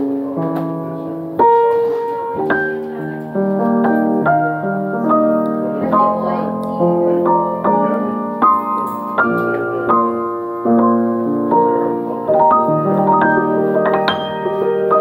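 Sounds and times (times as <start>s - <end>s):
piano chords and melody: 0.0s - 15.0s.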